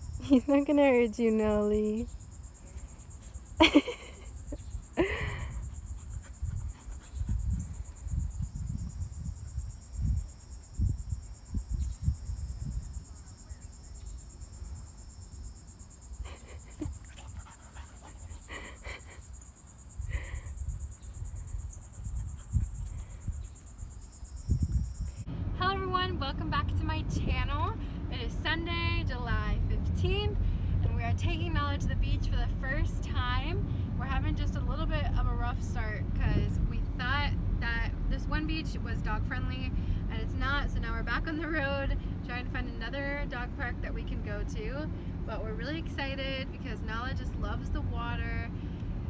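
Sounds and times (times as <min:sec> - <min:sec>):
insect chorus: 0:00.0 - 0:25.3.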